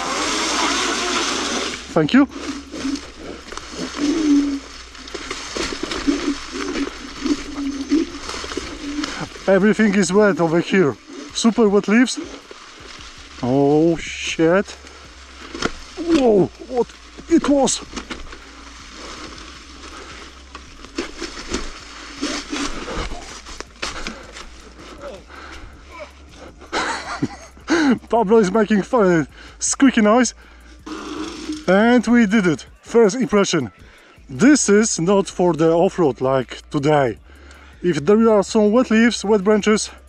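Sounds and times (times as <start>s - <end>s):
electric scooter motor hum: 0.0s - 9.5s
tyres churning through wet leaves: 0.0s - 33.4s.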